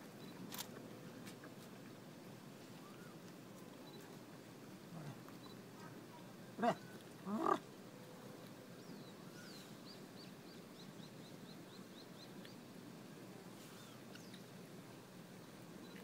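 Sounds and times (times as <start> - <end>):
faint bird chirping: 0.1 - 0.4, 2.6 - 4.2, 4.9 - 14.6, 15.3 - 16.0.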